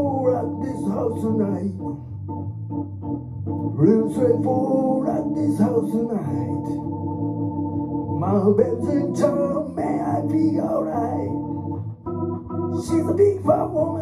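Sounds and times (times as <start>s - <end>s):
man singing: 0.0s - 2.0s, 3.8s - 6.8s, 8.2s - 11.4s, 12.7s - 14.0s
organ chords on keyboard: 0.0s - 14.0s.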